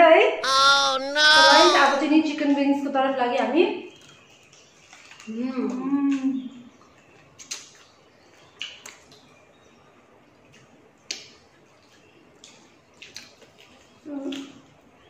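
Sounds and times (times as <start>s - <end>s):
lip smacks and chewing clicks: 12.4s - 14.5s.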